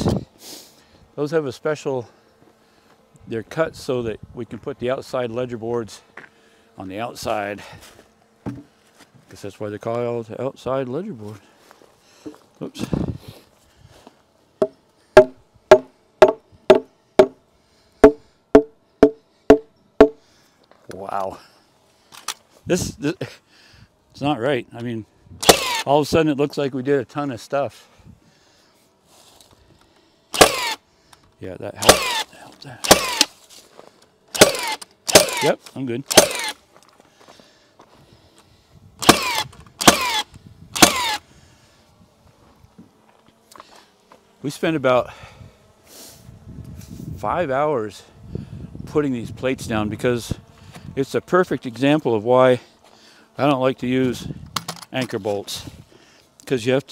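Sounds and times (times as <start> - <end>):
hammer striking wooden post: 14.6 - 17.4, 18.0 - 20.2, 30.4 - 30.7, 31.8 - 32.2, 32.9 - 33.3, 34.4 - 35.4, 36.1 - 36.5
nail gun firing: 15.2 - 17.3, 25.4 - 25.9, 30.3 - 30.8, 31.8 - 33.3, 34.3 - 36.6, 39.0 - 41.2.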